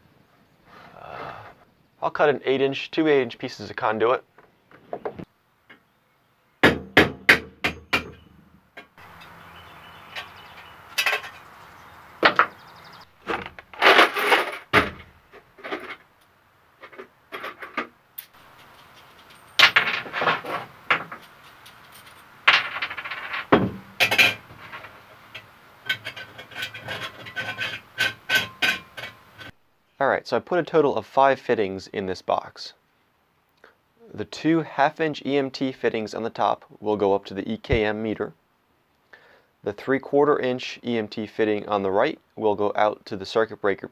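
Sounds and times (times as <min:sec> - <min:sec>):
screwdriver on metal box: 0:24.0 - 0:29.5.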